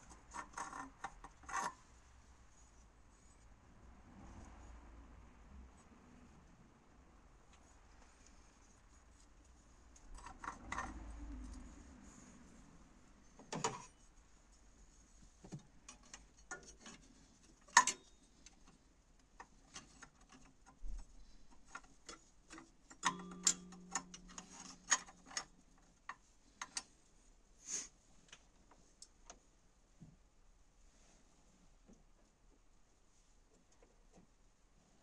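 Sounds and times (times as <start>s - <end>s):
metallic clicks of hand tools: 17.7s - 18.6s, 21.6s - 25.5s.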